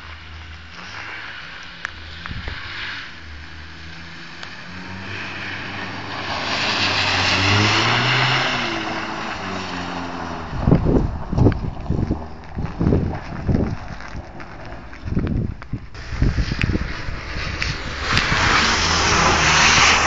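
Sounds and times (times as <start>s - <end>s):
car engine revving: 0.1s - 12.9s, 16.0s - 20.0s
wind buffeting microphone: 2.2s - 2.8s, 10.1s - 20.0s
tyres hissing on snow: 16.0s - 20.0s.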